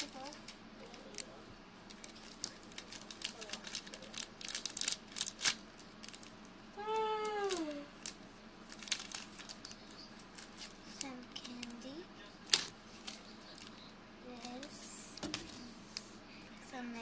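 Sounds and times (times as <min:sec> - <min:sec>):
plastic candy package crinkling: 0:01.9 - 0:06.5, 0:07.2 - 0:11.8, 0:12.4 - 0:15.6.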